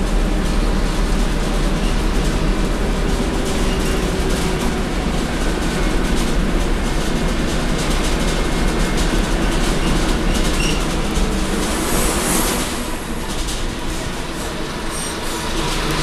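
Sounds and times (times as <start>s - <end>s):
bus diesel engine running: 0.0s - 16.0s
rattling of bus body: 0.0s - 16.0s
brief hiss: 11.5s - 13.1s.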